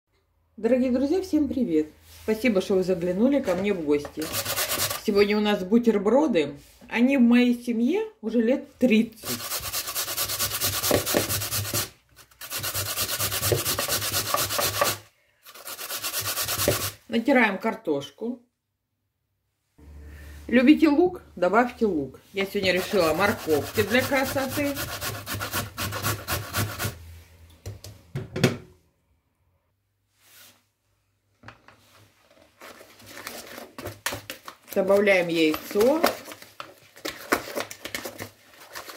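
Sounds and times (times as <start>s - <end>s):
whisk scraping in bowl: 4.2s - 5.1s, 9.2s - 17.0s, 22.4s - 27.0s
potato grated on metal grater: 4.2s - 5.2s, 9.2s - 17.0s, 22.4s - 27.0s.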